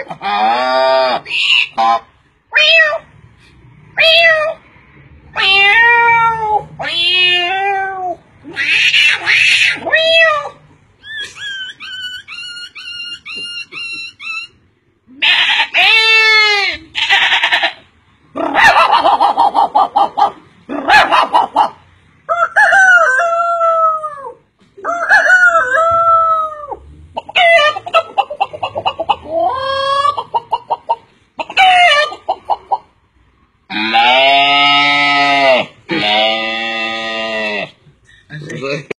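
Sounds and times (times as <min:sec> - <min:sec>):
man imitating animal calls: 0:00.0 - 0:02.1, 0:33.7 - 0:37.8.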